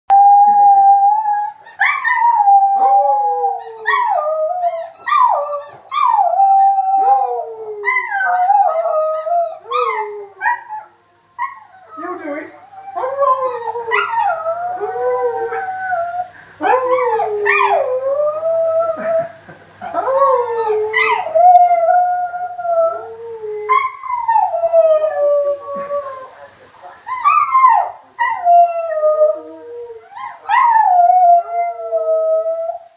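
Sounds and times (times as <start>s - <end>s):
dog howling: 0.1s - 19.1s.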